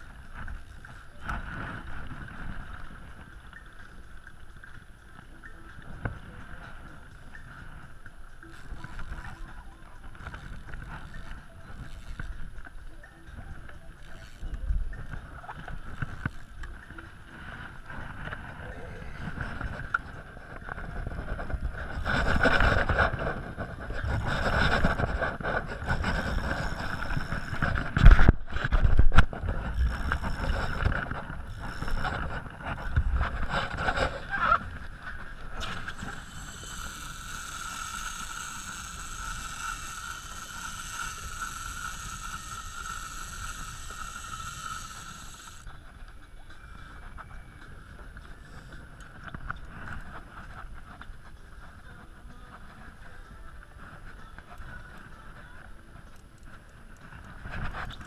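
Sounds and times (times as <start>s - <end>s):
fishing reel drag buzzing: 0.0s - 58.0s
wind buffeting microphone: 14.5s - 37.6s.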